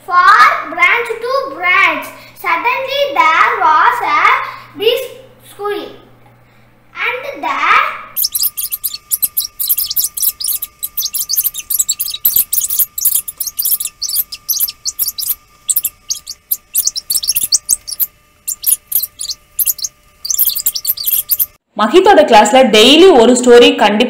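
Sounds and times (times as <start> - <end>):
sped-up squeaky child voice: 8.1 - 21.6.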